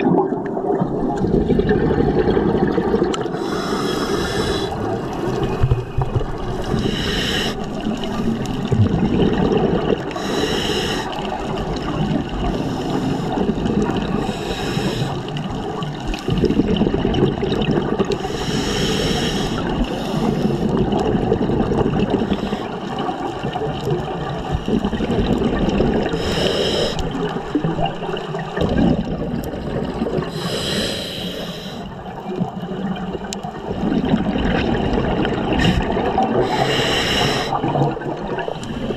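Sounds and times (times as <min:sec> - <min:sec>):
exhaled bubbles rumbling: 0:00.0 - 0:38.9
scuba regulator hissing inhale: 0:03.3 - 0:04.9, 0:06.6 - 0:08.5, 0:10.2 - 0:11.3, 0:12.4 - 0:13.5, 0:14.2 - 0:15.4, 0:18.2 - 0:20.8, 0:22.2 - 0:22.9, 0:26.0 - 0:27.1, 0:30.3 - 0:32.0, 0:35.6 - 0:37.7.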